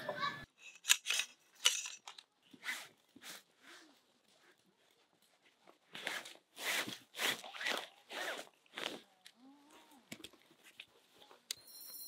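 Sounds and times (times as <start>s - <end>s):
nylon fabric rustling and swishing: 5.7s - 9.1s.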